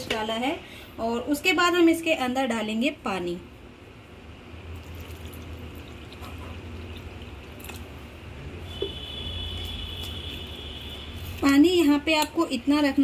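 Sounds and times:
water trickling into a bowl: 4.7 - 8.0.

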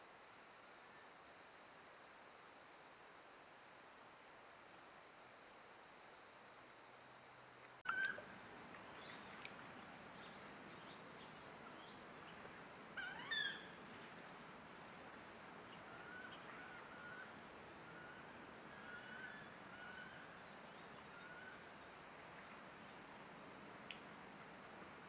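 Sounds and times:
faint bird chirps: 7.8 - 12.4, 13.0 - 13.8
birds calling: 13.0 - 13.8.

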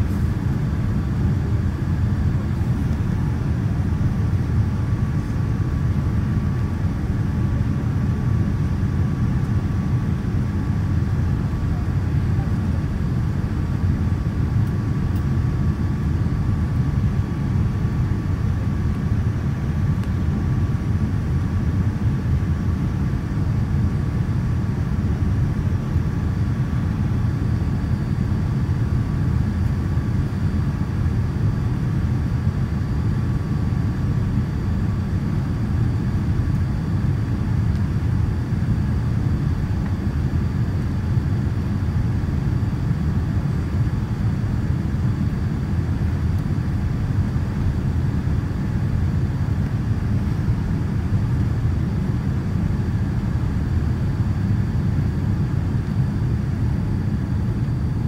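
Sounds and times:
faint steady whine: 0.0 - 58.0.

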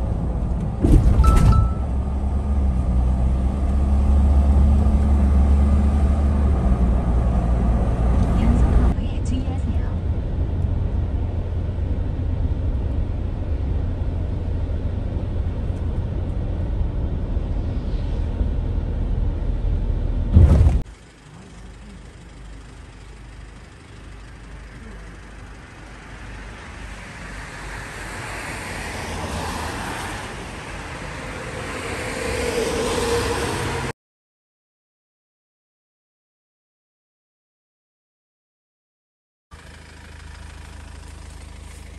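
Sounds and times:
road rumble inside moving vehicle: 0.0 - 34.0, 39.5 - 41.9
roadside traffic noise: 0.0 - 34.0, 39.5 - 41.9
vehicle passing: 24.8 - 33.9.

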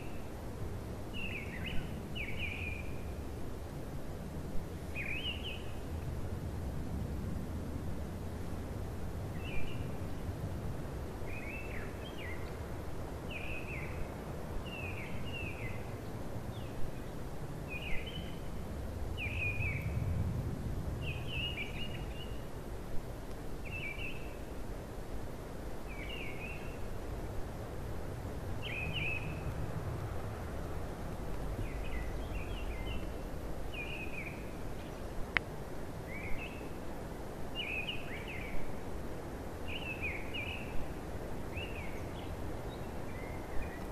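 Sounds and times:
songbird chirping: 1.1 - 3.2, 4.9 - 6.0, 11.2 - 20.1, 21.0 - 22.6, 23.3 - 24.6, 25.8 - 27.0, 28.5 - 29.6, 31.0 - 36.9, 37.5 - 38.8, 39.6 - 43.9.

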